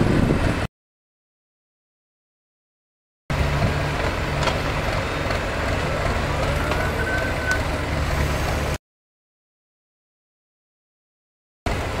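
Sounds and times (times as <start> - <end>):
diesel engine running: 3.3 - 8.8, 11.7 - 12.0.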